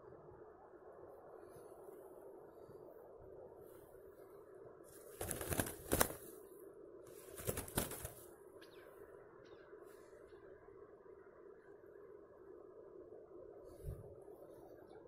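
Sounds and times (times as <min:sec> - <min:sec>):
bird wings flapping against net: 0:04.9 - 0:06.3, 0:07.1 - 0:08.3.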